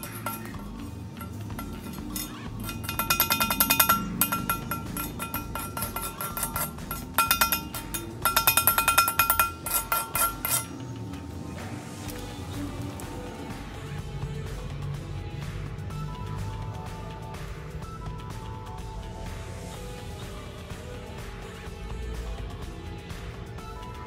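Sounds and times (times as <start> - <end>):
chipping hammer tapping steel: 0.0 - 10.8.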